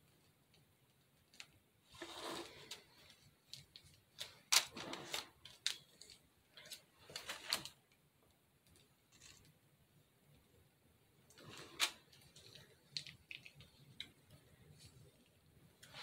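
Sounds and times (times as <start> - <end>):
plastic piping bag rustling: 11.3 - 16.0.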